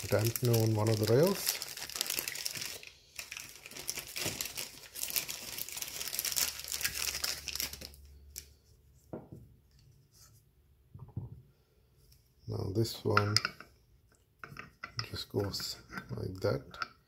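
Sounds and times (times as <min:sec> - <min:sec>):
plastic bag crinkling: 0:00.0 - 0:08.5.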